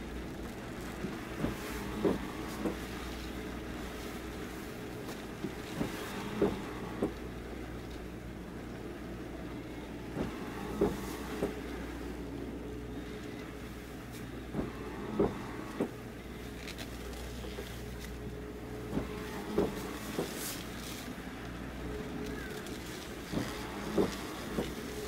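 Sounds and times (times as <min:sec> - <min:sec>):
boat engine hum: 0:00.0 - 0:25.0.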